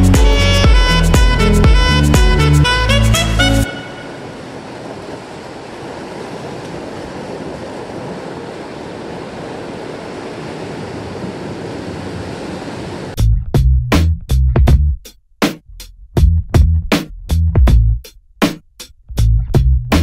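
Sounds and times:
waves breaking on rocks: 3.7s - 13.2s.

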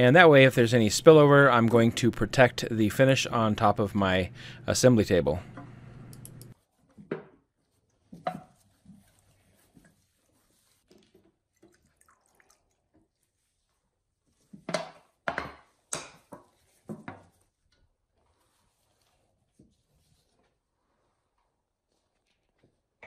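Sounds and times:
liquid trickling into glass dish: 11.5s - 13.0s.

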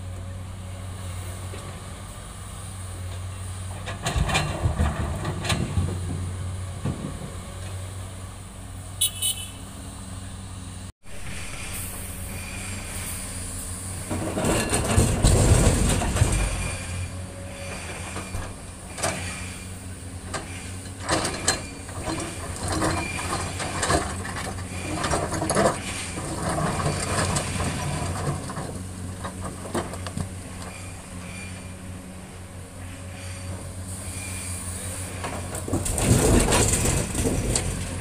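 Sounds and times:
excavator diesel engine running: 0.0s - 38.0s
boulders crashing into truck: 3.7s - 7.6s, 14.0s - 17.1s, 21.0s - 30.9s, 35.2s - 38.0s
bucket knocking and scraping rocks: 21.0s - 30.6s, 35.3s - 38.0s.

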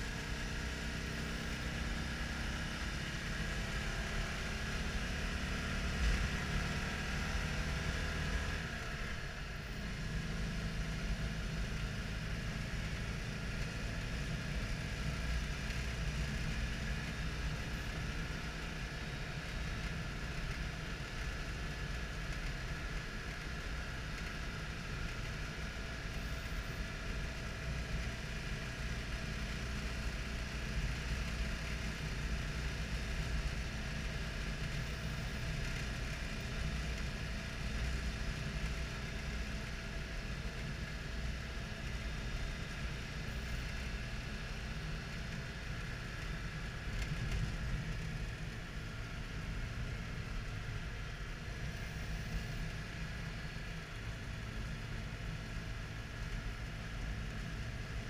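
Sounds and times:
car engine running: 0.0s - 58.0s
road and wind noise: 0.0s - 58.0s.

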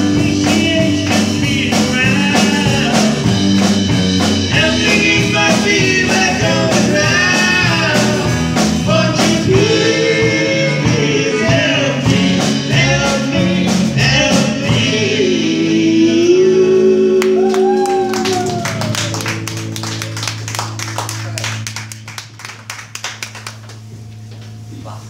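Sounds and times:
man singing: 0.0s - 3.4s, 4.5s - 18.6s
live rock band playing: 0.0s - 24.7s.

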